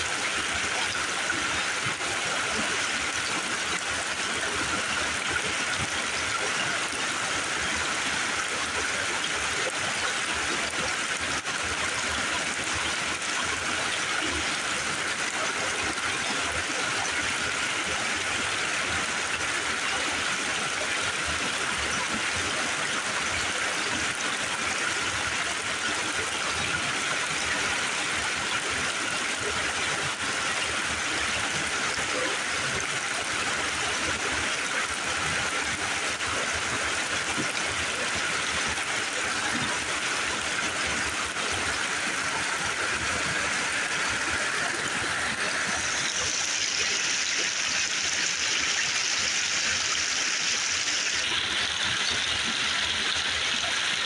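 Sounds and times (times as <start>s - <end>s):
creek rushing over rocks: 0.0s - 54.0s.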